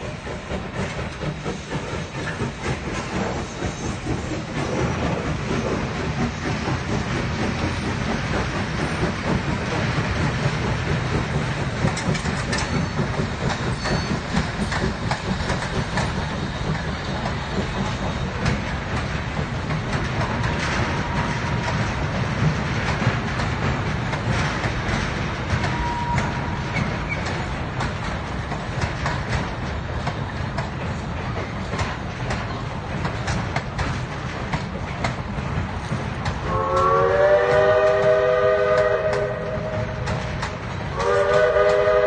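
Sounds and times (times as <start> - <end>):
steam train crossing a steel bridge: 0.0 - 42.0.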